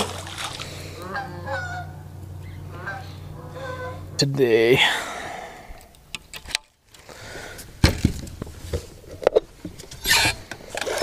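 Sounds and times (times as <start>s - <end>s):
fishing gear clicks and clunks: 5.8s - 11.0s.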